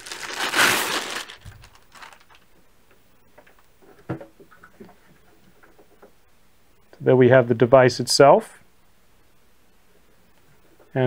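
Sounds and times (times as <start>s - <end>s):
plastic and foam packaging rustling: 0.0s - 2.5s.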